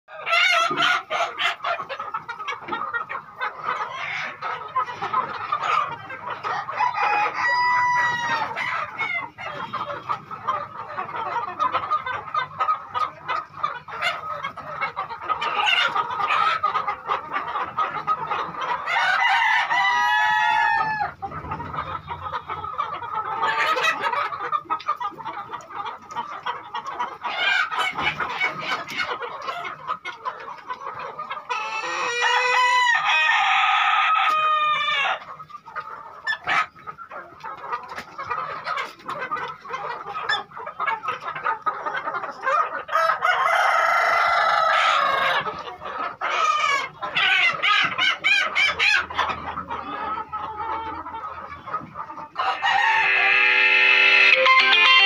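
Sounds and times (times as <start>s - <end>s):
chickens clucking: 0.1s - 55.0s
roosters crowing: 6.4s - 9.3s, 18.8s - 21.3s, 31.5s - 35.2s, 42.9s - 45.5s, 52.4s - 55.0s.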